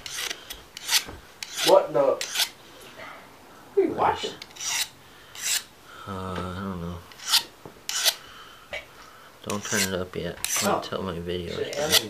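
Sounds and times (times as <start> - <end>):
sharpening stone rasping on blade: 0.0 - 2.6, 4.4 - 5.7, 7.1 - 8.2, 9.5 - 10.8, 11.6 - 12.0.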